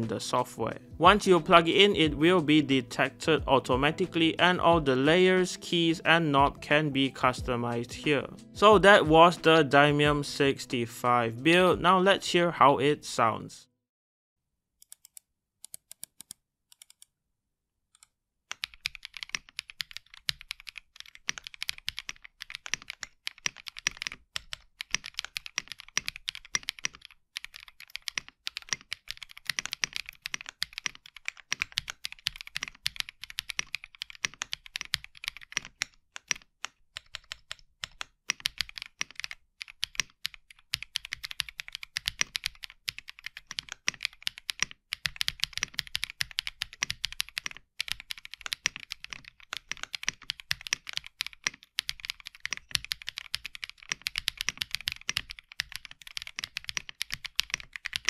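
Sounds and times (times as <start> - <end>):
mechanical keyboard typing: 18.5 - 58.0.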